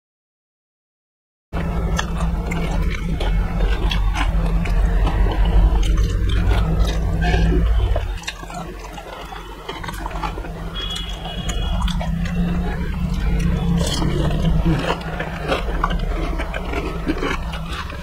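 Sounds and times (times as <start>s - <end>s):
chewing and slurping: 1.6s - 18.0s
loud low rumble: 1.6s - 18.0s
crisp shells crunching: 1.9s - 18.0s.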